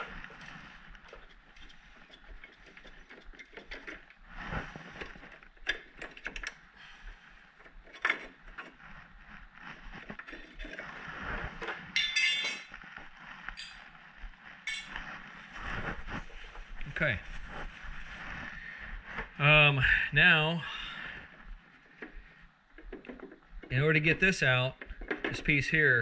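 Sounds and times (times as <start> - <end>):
tool and metal parts clinking: 12.0 - 12.7, 14.7 - 15.0.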